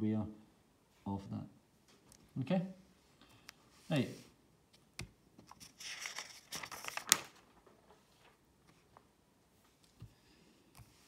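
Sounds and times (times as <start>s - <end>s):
paper rustling and crinkling: 5.4s - 9.1s
sharp paper crackle: 5.5s - 8.4s.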